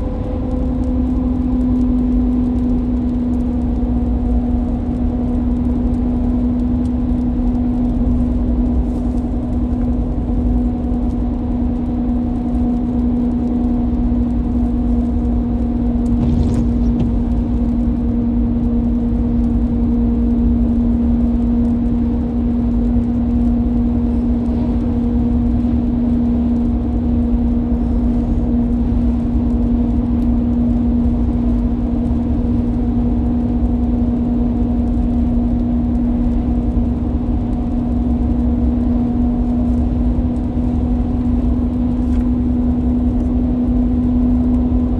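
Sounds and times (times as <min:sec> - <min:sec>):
car tyres and engine rumble: 0:00.0 - 0:44.9
brief swish: 0:16.2 - 0:17.3.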